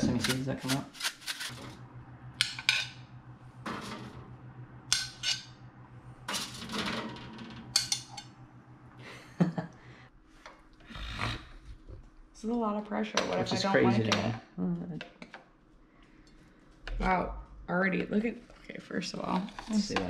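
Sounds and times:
steady low hum: 0.0 - 20.0
metal tongs clinking and scraping: 4.9 - 5.6.

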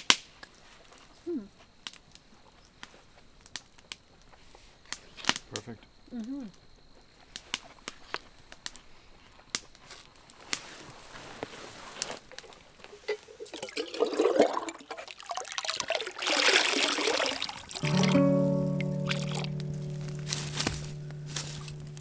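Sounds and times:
water pouring into a lake: 12.4 - 18.3, 19.0 - 19.5.

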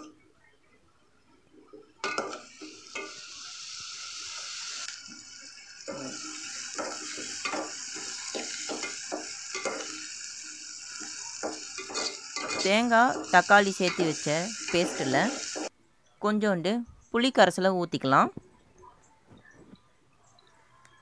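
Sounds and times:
onions sizzling in hot oil: 2.0 - 15.7
metal spatula scraping a pot: 10.9 - 15.7.

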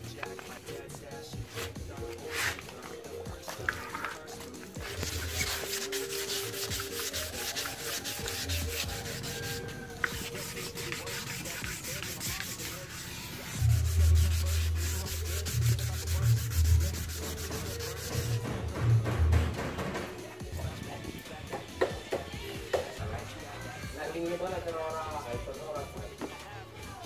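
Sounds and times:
hand wet-sanding helmet shell: 4.0 - 18.5.

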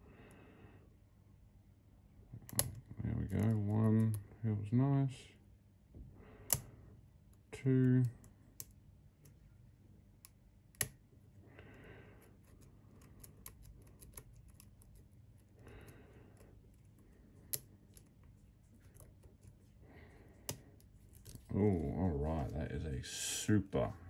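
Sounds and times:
small metallic clicks: 2.4 - 4.2
lock pick tapping and scraping: 12.2 - 15.7, 16.3 - 19.6.

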